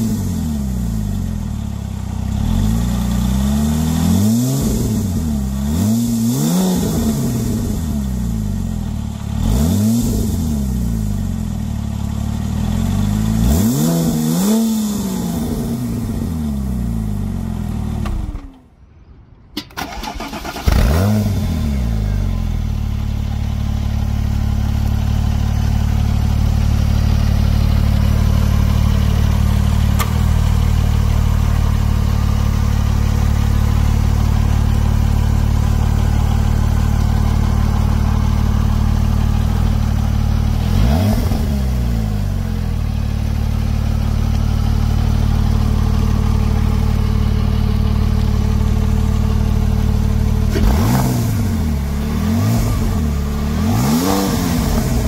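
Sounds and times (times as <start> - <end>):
car engine idling: 0.0 - 6.4, 7.1 - 13.6, 19.6 - 55.0
engine revs blipped: 44.9 - 55.0.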